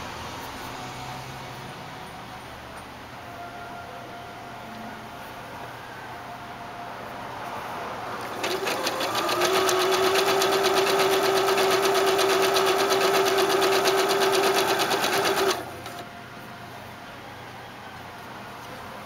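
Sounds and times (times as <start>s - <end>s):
sewing machine running: 8.2s - 16.0s.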